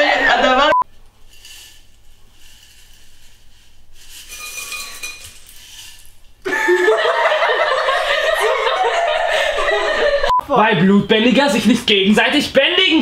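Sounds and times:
glass jar and bowl clinking: 0:04.2 - 0:06.1
girls laughing loudly: 0:06.5 - 0:10.4.

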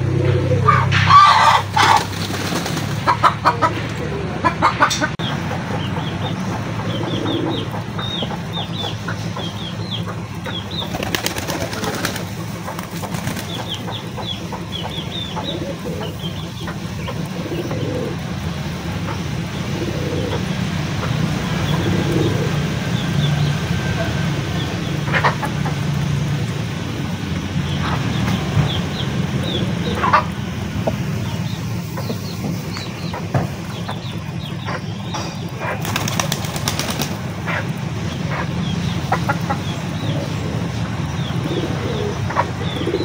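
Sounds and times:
rooster flapping wings: 0:01.6 - 0:03.1, 0:10.9 - 0:13.7, 0:35.8 - 0:37.3.

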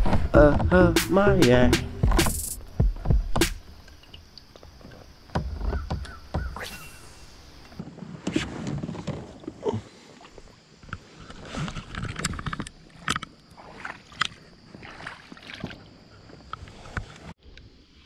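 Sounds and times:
gear clattering on plastic kayak: 0:02.0 - 0:06.6, 0:07.7 - 0:09.7, 0:10.3 - 0:17.3.

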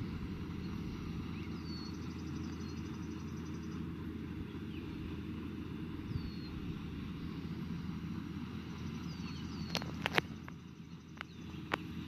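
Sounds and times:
tractor engine running: 0:00.0 - 0:12.0
bird chirps: 0:00.6 - 0:03.9, 0:06.1 - 0:06.6, 0:08.7 - 0:11.8.

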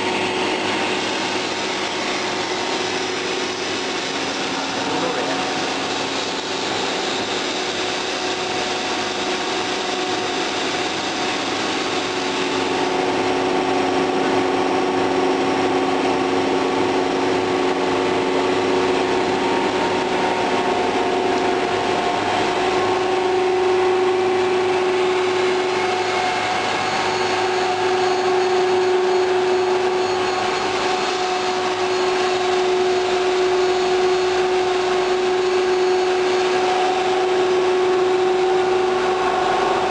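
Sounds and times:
machine drone and motor hum: 0:00.0 - 0:39.9.

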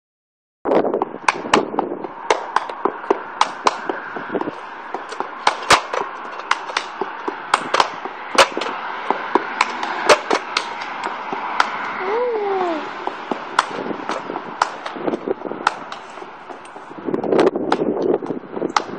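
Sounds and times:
sharp percussive clicks: 0:13.6 - 0:15.0.

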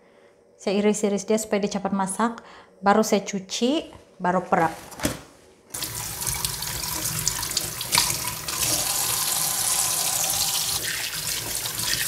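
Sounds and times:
tap running into a sink: 0:05.8 - 0:12.0.

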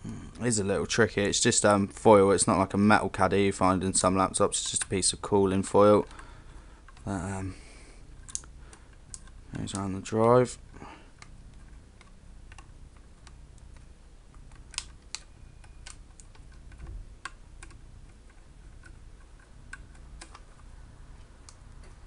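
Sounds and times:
steady low hum: 0:00.0 - 0:22.0
small clicks and taps: 0:08.2 - 0:10.4, 0:11.2 - 0:22.0.

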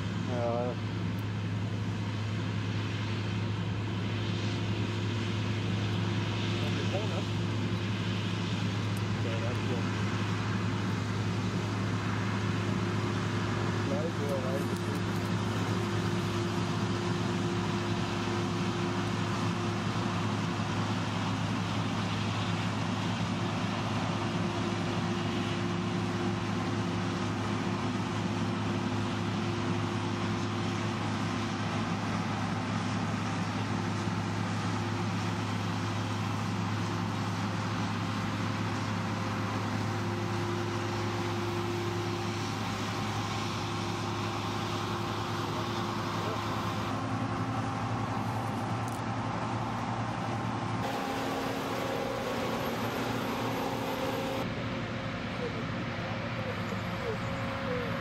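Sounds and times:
combine harvester engine hum: 0:00.0 - 0:58.0
mechanical rushing noise: 0:42.5 - 0:54.5
higher mechanical tone: 0:50.8 - 0:54.5.

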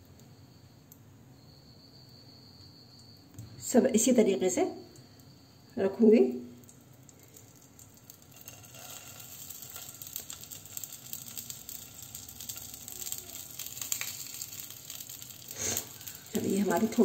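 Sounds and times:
oil sizzling in frying pan: 0:06.6 - 0:17.0.

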